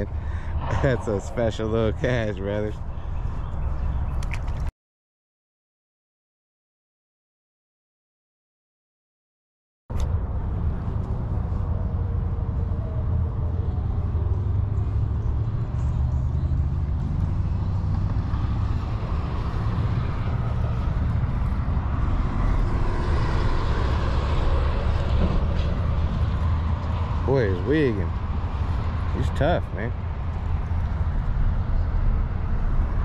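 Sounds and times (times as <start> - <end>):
vehicle passing by: 0.0 - 3.6, 10.2 - 33.0
road traffic rumble: 0.0 - 4.7, 9.9 - 33.0
wind on microphone: 10.0 - 27.2.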